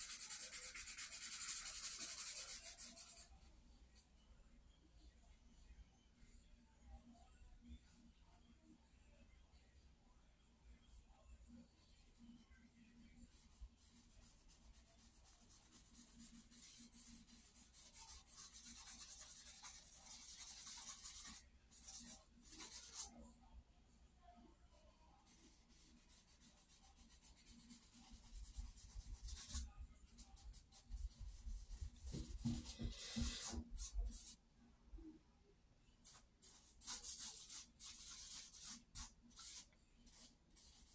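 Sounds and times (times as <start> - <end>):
charcoal scratching on paper: 0.0 - 3.4, 13.3 - 23.2, 25.2 - 34.4, 36.1 - 40.9.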